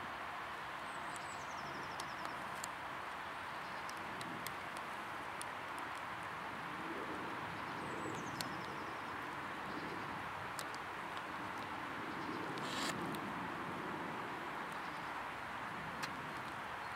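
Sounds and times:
steady background hiss: 0.0s - 16.9s
songbird trill: 0.9s - 2.6s, 7.6s - 10.1s
faint ticks: 1.1s - 6.4s, 8.1s - 9.0s, 10.5s - 13.3s, 16.0s - 16.6s.

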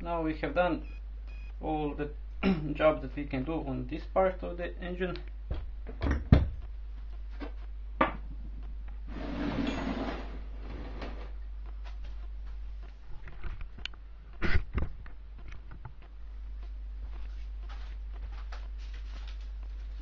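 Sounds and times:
low hum: 0.0s - 20.0s
rustling handling noise: 17.0s - 20.0s.

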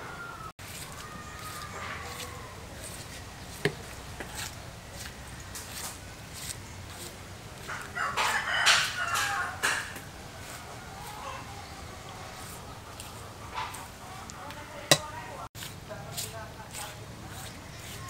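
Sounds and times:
rooster crowing: 0.0s - 3.1s, 7.6s - 12.6s.

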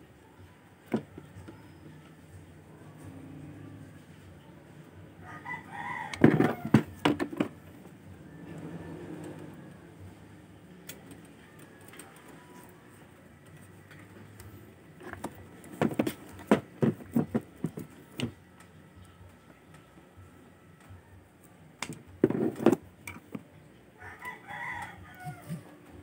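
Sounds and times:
rooster crowing: 5.2s - 7.0s, 24.0s - 25.8s.

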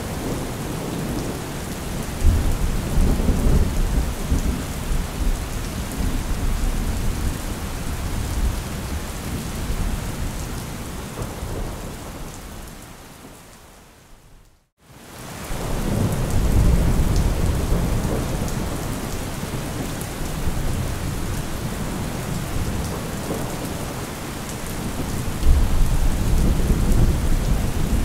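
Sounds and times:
heavy rain: 0.0s - 28.0s.

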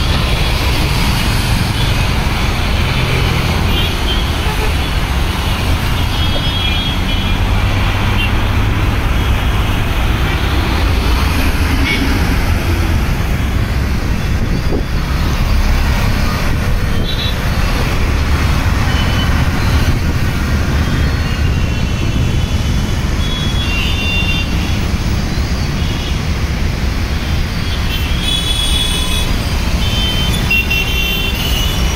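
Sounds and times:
motorbikes passing: 0.0s - 23.6s
road traffic rumble: 0.0s - 31.9s.

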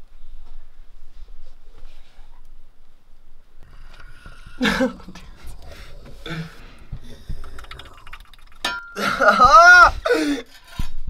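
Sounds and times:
faint low rumble: 0.0s - 8.6s
man's wordless vocal sounds: 3.6s - 10.5s.

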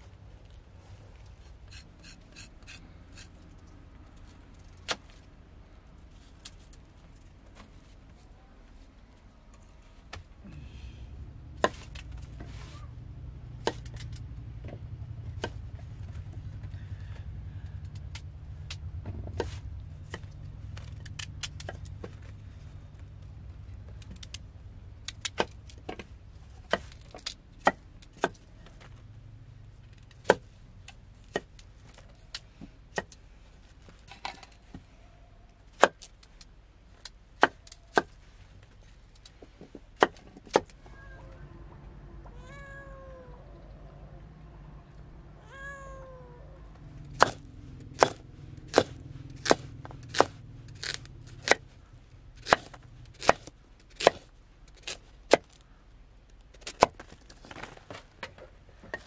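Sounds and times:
low rumble: 40.7s - 53.1s
knife chopping on wooden board: 47.2s - 47.4s, 48.0s - 51.6s.

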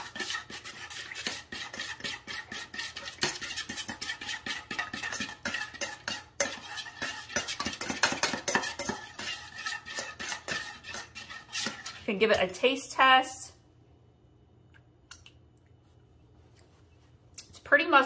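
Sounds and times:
metal spoon scraping a steel bowl: 0.0s - 12.6s.

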